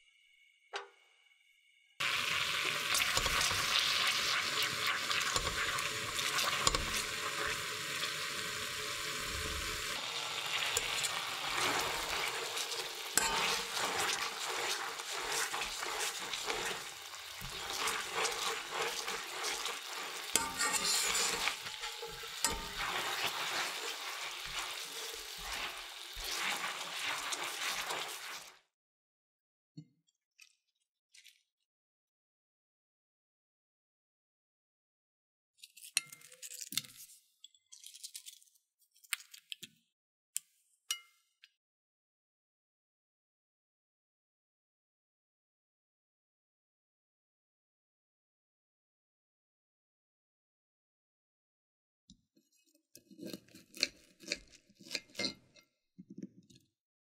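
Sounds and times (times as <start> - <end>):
sauce bubbling and sizzling in pan: 2.0 - 28.6.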